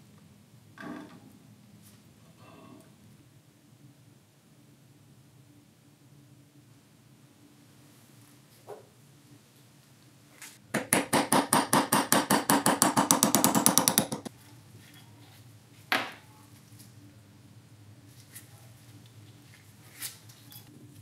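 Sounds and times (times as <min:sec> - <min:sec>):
tool striking metal rapidly: 0:10.8 - 0:14.3.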